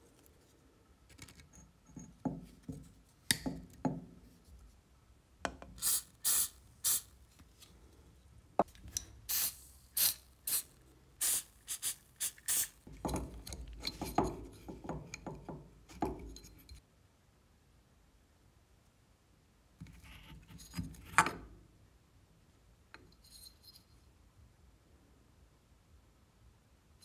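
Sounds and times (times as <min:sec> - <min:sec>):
aerosol spray can hissing: 0:05.8 - 0:07.1, 0:09.3 - 0:12.8
rubbing and knocks of metal parts: 0:12.9 - 0:16.8.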